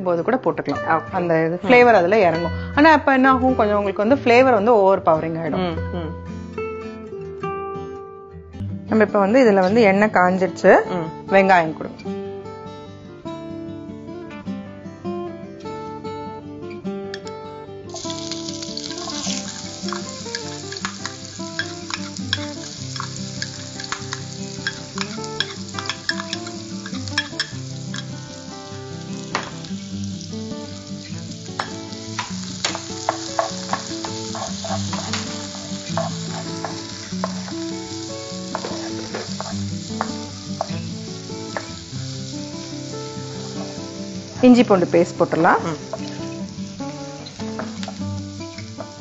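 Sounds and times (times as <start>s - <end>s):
onions sizzling in oil: 17.9s - 49.0s
spatula scraping a pan: 32.7s - 37.6s, 38.5s - 40.1s.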